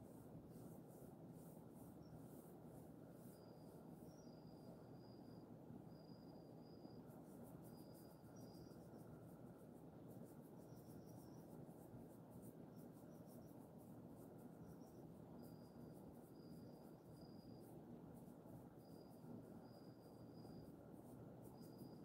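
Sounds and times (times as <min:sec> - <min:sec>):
low steady hum: 0:00.0 - 0:22.0
insects chirping: 0:01.7 - 0:22.0.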